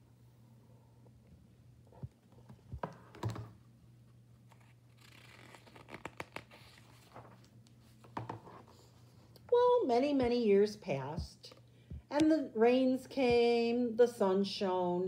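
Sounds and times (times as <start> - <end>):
paper pages rustling: 4.4 - 9.1.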